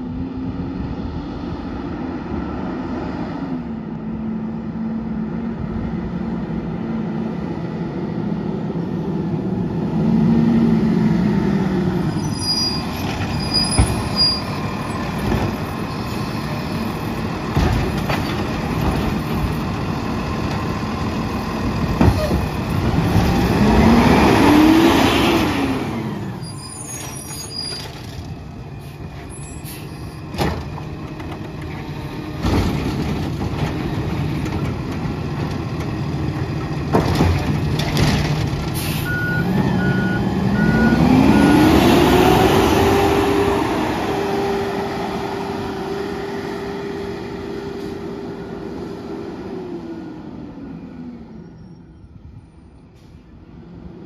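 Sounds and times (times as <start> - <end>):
garbage truck engine revving: 9.5 - 26.6, 32.0 - 49.5
short high squeals: 12.1 - 14.6, 26.4 - 27.9.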